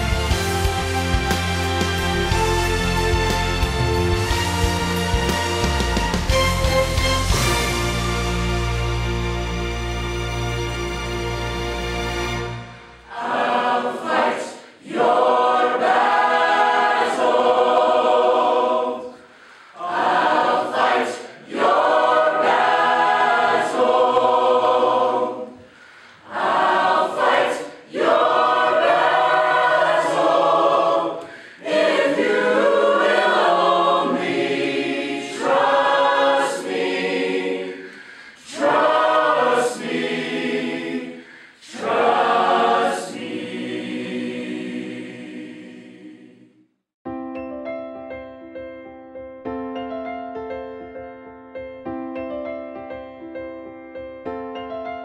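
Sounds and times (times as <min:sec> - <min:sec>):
mixed choir singing unaccompanied: 0:12.5 - 0:46.6.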